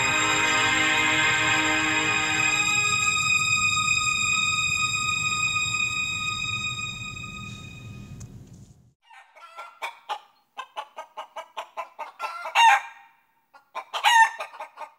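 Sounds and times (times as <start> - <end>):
music track: 0.0 - 8.3
chicken clucking: 9.1 - 12.8, 13.5 - 14.9.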